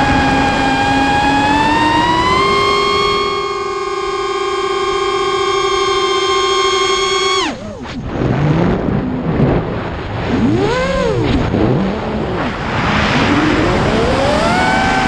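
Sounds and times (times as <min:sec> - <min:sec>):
quadcopter motors whining: 0:00.0 - 0:08.2, 0:10.4 - 0:12.0, 0:13.2 - 0:15.0
rush of wind: 0:07.4 - 0:15.0.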